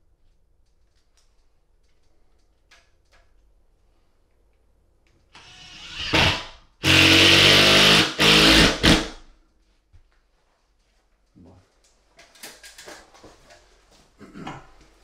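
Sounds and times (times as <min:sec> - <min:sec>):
impact driver driving screw: 0:05.4 - 0:09.2.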